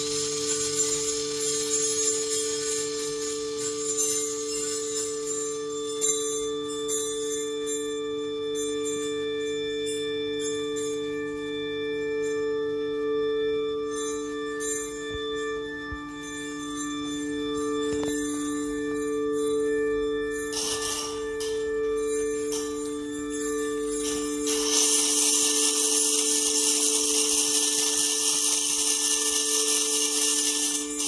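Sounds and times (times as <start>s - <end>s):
jingling bell-like shimmer: 0.0s - 31.0s
low droning tones: 12.6s - 31.0s.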